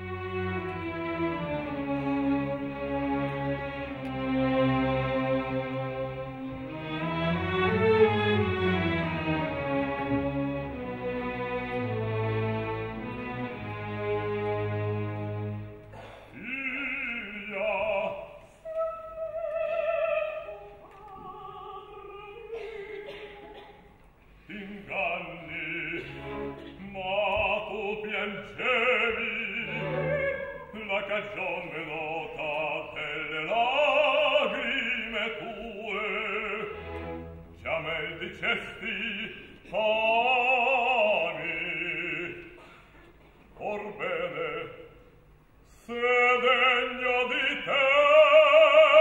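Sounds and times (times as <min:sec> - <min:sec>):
orchestra playing: 0:00.0 - 0:15.9, 0:25.3 - 0:31.7, 0:32.9 - 0:39.4
operatic singing with vibrato: 0:00.0 - 0:42.9, 0:43.6 - 0:49.0.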